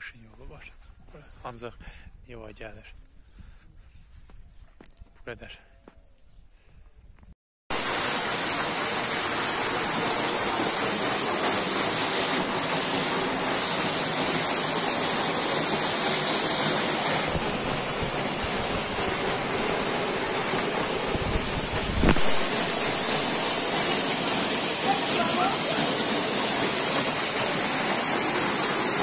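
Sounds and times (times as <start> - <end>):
stream and waterfall rushing: 7.7 - 29.0.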